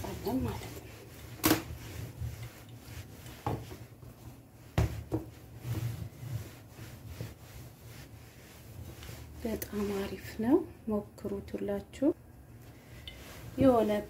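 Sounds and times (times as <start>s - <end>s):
rolling pin rumbling on dough: 0.0s - 10.0s.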